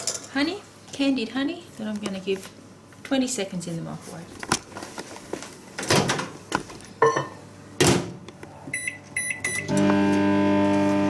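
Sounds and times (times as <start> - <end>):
microwave oven humming: 8.5 - 11.0
short keypad beeps: 8.8 - 9.7.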